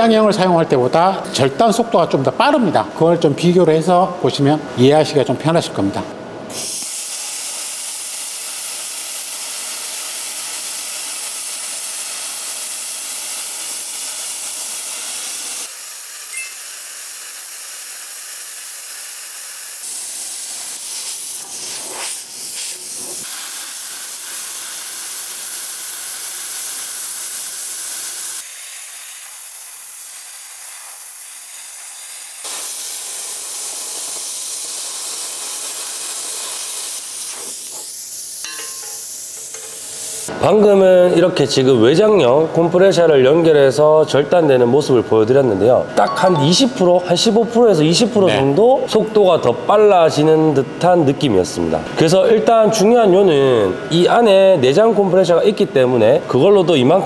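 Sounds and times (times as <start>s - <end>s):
plasma cutter hissing: 6.5s - 40.3s.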